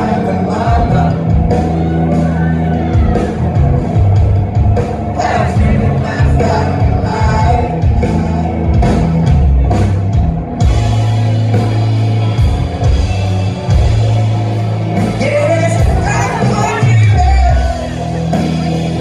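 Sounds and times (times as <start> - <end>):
man singing lead vocal: 0.0 - 1.9, 5.1 - 9.2, 15.2 - 18.4
live rock band playing: 0.0 - 19.0.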